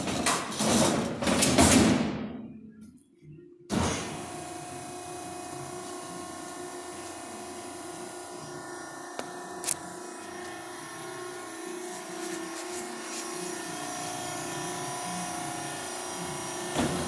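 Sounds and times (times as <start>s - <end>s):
electric motor and pump hum: 3.7s - 17.0s.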